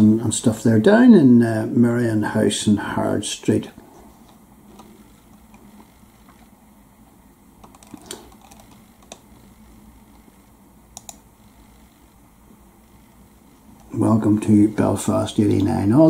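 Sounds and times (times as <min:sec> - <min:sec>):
low steady hum: 0:00.0 - 0:16.0
laptop clicks and taps: 0:07.6 - 0:09.2, 0:11.0 - 0:11.2.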